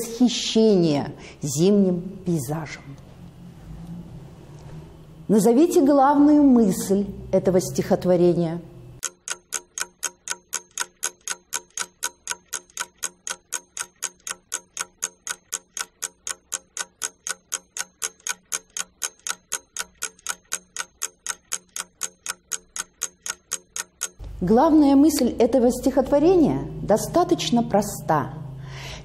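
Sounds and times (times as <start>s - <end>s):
clock ticking: 9.0s - 26.2s.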